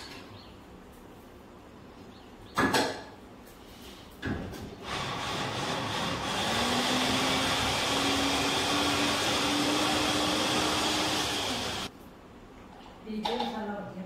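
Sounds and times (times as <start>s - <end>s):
mixer grinder motor hum: 4.8s - 11.9s.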